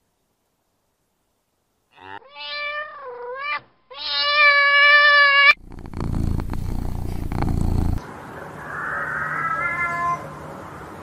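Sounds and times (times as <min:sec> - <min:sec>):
cat meowing: 0:02.1 - 0:08.0, 0:08.6 - 0:10.5
low rough rumbling: 0:05.6 - 0:08.0.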